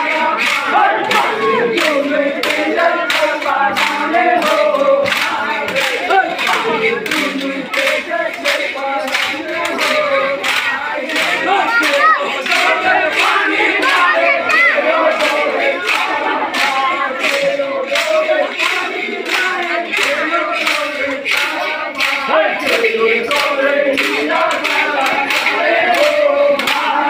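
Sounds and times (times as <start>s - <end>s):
crowd chanting and shouting: 0.0s - 27.0s.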